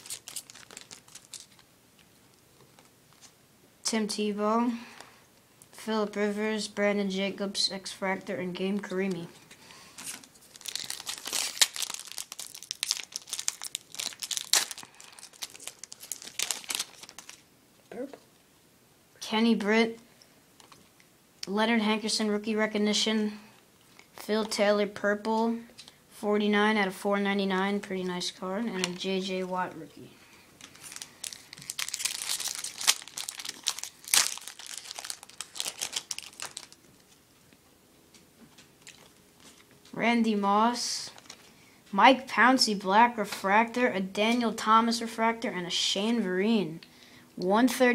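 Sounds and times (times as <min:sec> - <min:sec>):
foil wrapper crinkling: 0:00.0 - 0:01.7, 0:10.0 - 0:17.5, 0:30.6 - 0:37.2, 0:41.1 - 0:41.5.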